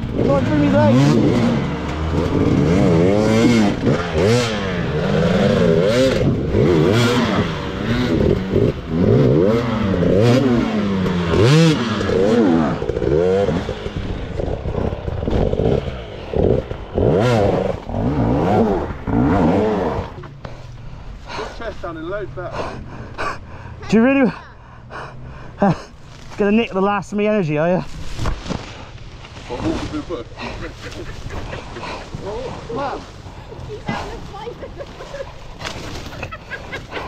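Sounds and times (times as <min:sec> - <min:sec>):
dirt bike engine revving: 0:00.0 - 0:22.2.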